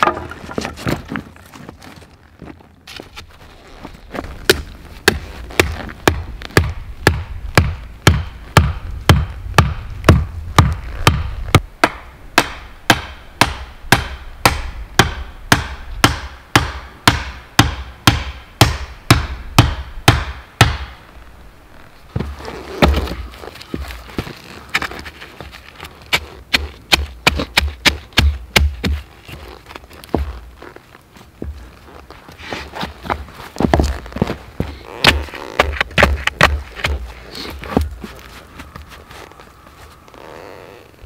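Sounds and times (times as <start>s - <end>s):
stake hammered into ground: 26.1s - 29.0s.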